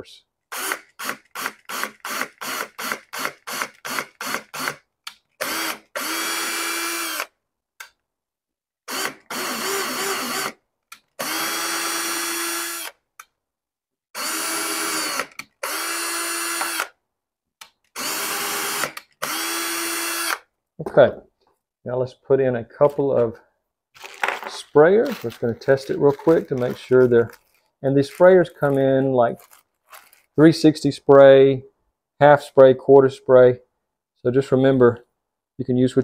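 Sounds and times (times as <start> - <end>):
cordless drill whine: 0.5 - 4.7, 5.4 - 7.3, 8.9 - 10.6, 11.2 - 13.0, 14.2 - 16.9, 18.0 - 20.4.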